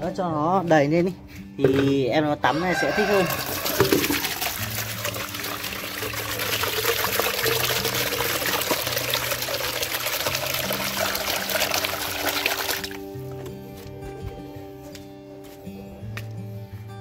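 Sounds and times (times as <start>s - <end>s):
water pouring into container: 2.8s - 13.0s.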